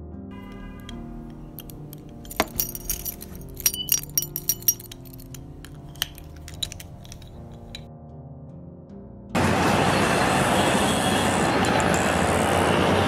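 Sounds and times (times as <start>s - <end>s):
soft background music: 0.0s - 11.7s
door bolt and padlock clicking: 0.5s - 7.9s.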